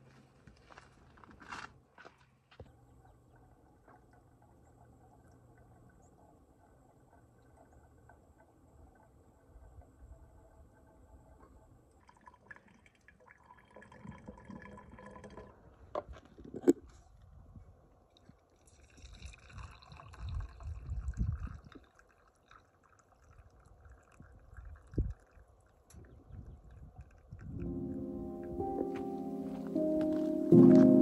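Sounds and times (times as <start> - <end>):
coffee pouring into metal mug: 12.0 - 15.7, 18.6 - 27.6.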